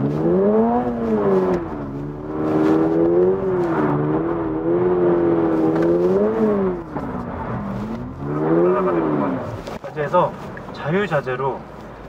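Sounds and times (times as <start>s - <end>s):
car engine revving high: 0.0s - 9.6s.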